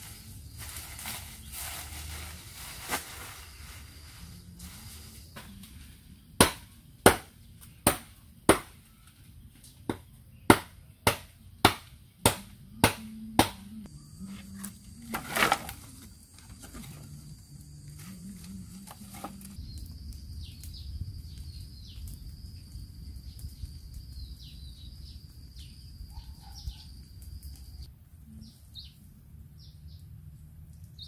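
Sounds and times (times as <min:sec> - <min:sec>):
leaves rustling: 0:00.0 - 0:09.8, 0:13.8 - 0:19.7
machete chopping branch: 0:06.4 - 0:08.8, 0:09.9 - 0:13.6.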